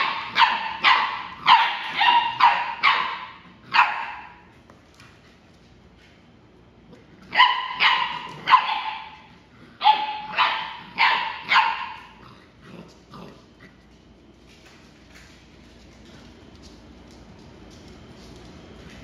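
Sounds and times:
puppy barking: 0.0s - 4.4s, 7.3s - 12.2s.

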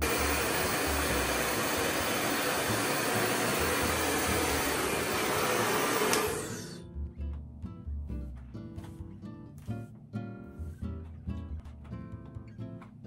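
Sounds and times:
hair dryer running: 0.0s - 6.8s.

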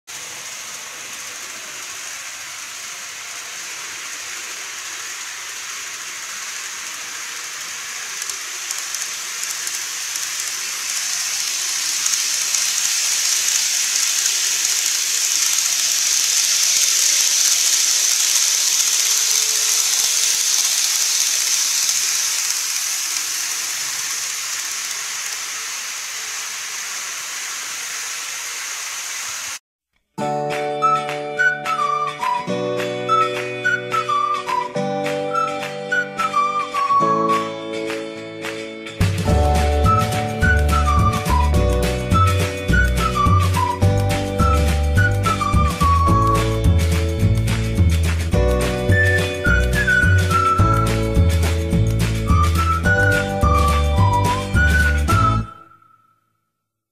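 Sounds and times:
model train wheels and motor hiss: 0.1s - 29.6s, 39.0s - 55.5s.

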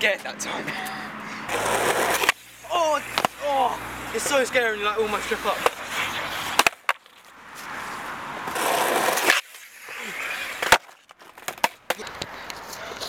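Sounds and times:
skateboard wheels rolling on asphalt: 1.5s - 13.0s
skateboard clacking on ground: 3.0s - 3.4s, 5.6s - 7.3s, 8.5s - 13.0s.

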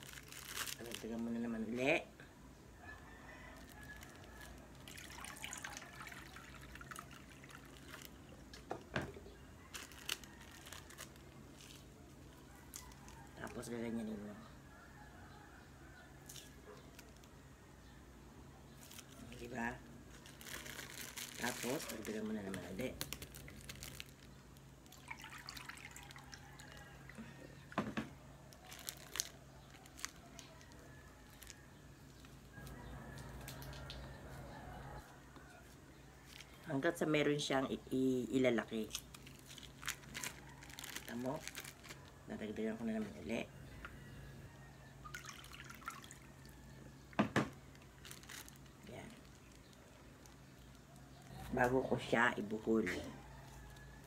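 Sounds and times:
water trickling into plastic bag: 0.0s - 2.0s, 3.5s - 8.4s, 9.7s - 14.0s, 18.8s - 27.8s, 28.5s - 31.6s, 38.0s - 43.0s, 44.8s - 51.4s
water trickling and dripping: 4.8s - 8.0s, 24.9s - 27.1s, 45.0s - 46.4s.

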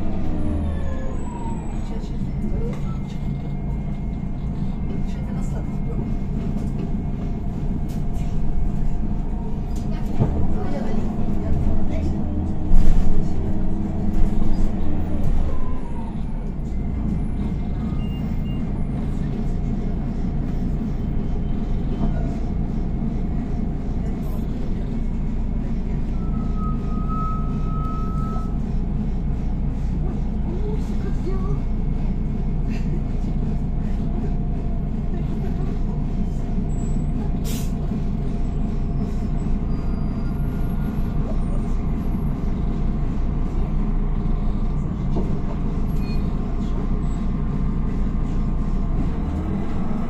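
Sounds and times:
bus diesel engine: 0.0s - 50.0s
road noise: 0.0s - 50.0s.

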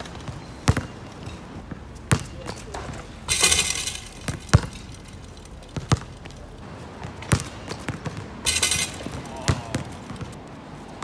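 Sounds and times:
basketball bouncing on court: 0.0s - 10.4s
rim and backboard clattering: 2.1s - 6.5s, 7.2s - 10.2s.

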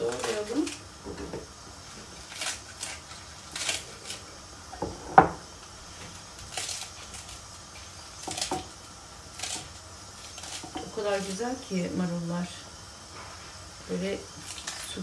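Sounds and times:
knife cutting crisp lettuce: 2.0s - 4.2s, 6.0s - 11.4s, 14.3s - 15.0s.

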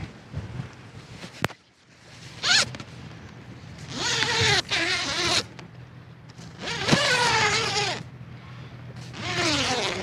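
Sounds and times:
zipper pulled open: 2.4s - 2.8s, 3.8s - 5.5s, 6.5s - 8.1s, 9.0s - 10.0s.

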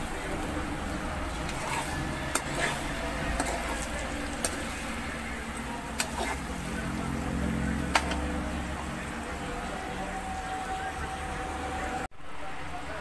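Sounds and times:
food sizzling in a frying pan: 0.0s - 8.7s.

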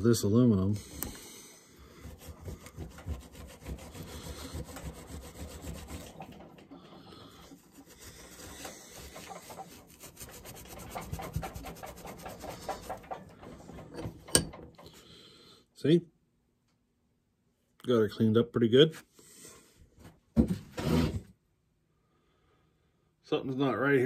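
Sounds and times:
abrasive pad scrubbing metal: 1.8s - 13.2s.

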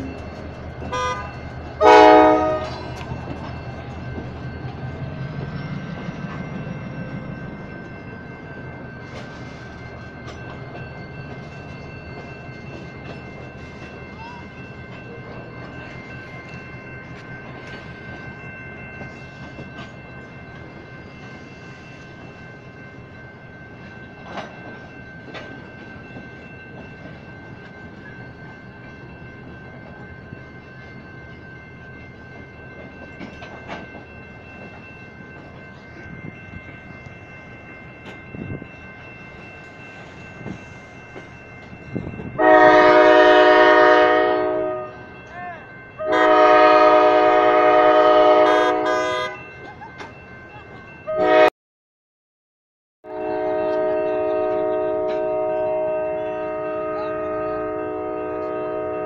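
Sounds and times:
train wheels clacking on rails: 0.0s - 30.1s, 30.7s - 44.5s
crossing warning bell ringing: 0.0s - 51.5s, 53.1s - 59.0s
train horn blast: 0.9s - 2.8s, 42.4s - 45.0s, 46.0s - 49.4s, 51.1s - 51.5s, 53.0s - 59.0s.

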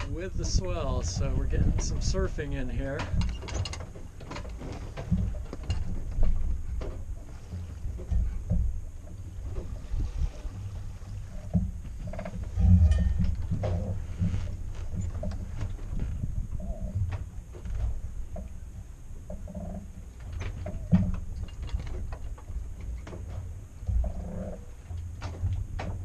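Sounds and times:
wind buffeting microphone: 0.0s - 19.8s
water rushing along hull: 0.0s - 26.0s.

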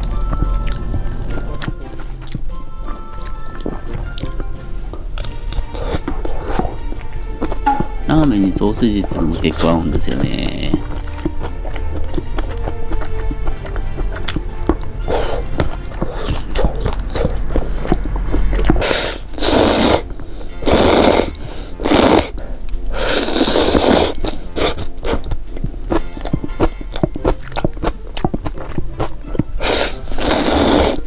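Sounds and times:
person chewing with wet clicks: 0.0s - 20.8s, 22.4s - 30.5s
slurping noodles: 5.3s - 7.0s, 10.8s - 25.4s, 27.3s - 31.0s.

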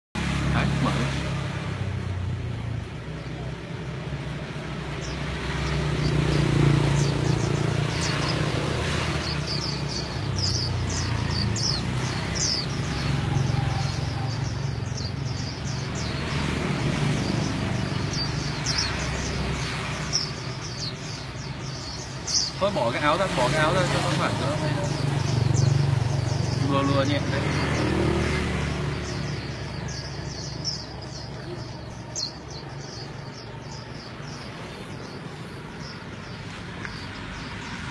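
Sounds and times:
small birds chirping: 0.2s - 37.9s.

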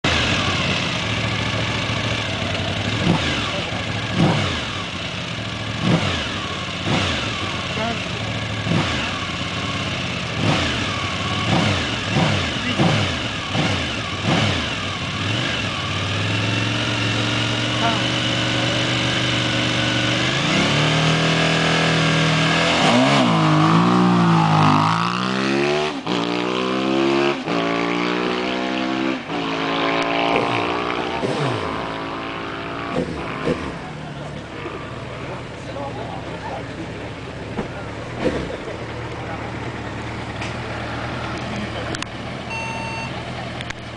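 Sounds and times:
motorcycle engine idling: 0.1s - 20.1s, 33.1s - 43.9s
engine throttle blips: 30.0s - 43.9s.

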